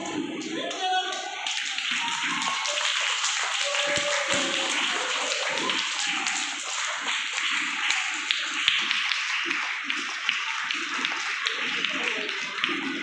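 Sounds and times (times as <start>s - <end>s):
people clapping: 0.0s - 13.0s.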